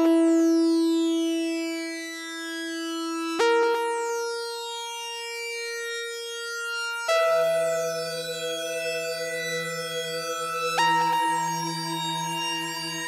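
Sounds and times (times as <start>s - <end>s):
sustained synthesizer chords: 7.1s - 13.0s.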